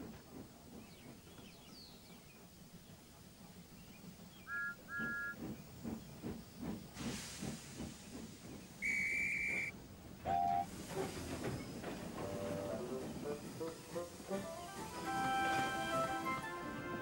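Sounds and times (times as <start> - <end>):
locomotive chuffing: 0.0 - 17.0
steam hissing: 4.5 - 9.7, 10.6 - 16.8.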